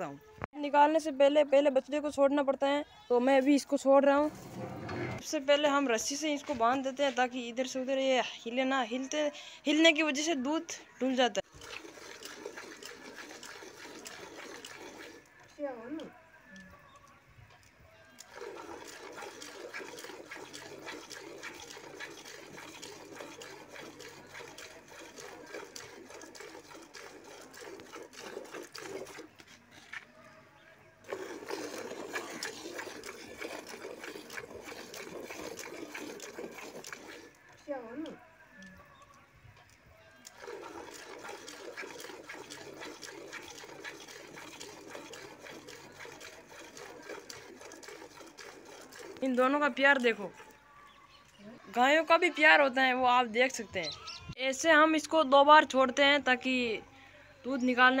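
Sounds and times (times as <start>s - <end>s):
milk squirting into metal pail: 11.4s - 15.5s, 18.2s - 30.0s, 31.0s - 38.2s, 40.2s - 50.3s.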